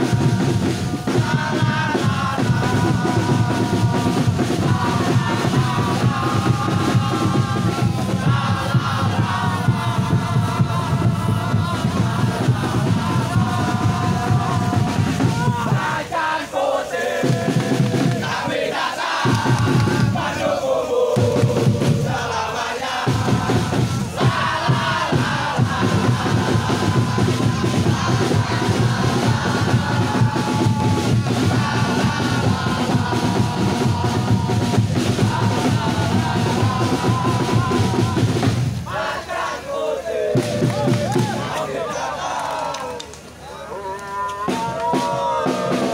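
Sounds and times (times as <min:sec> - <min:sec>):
crowd singing a chant: 0:00.0 - 0:45.9.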